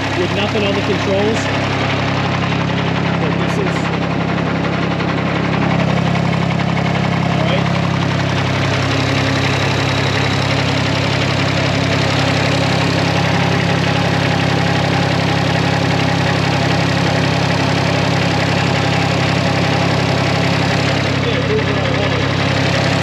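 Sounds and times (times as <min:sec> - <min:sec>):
diesel engine idling: 0:00.0 - 0:23.0.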